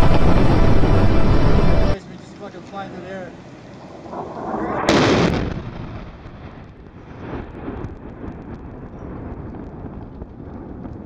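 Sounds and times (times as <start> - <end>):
explosion blast and rumble: 3.7 - 11.0.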